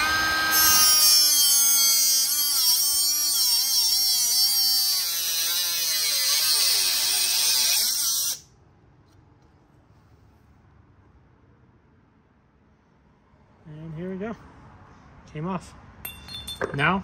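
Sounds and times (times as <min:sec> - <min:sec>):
cut-off tool whining through metal: 0:00.0 - 0:08.4.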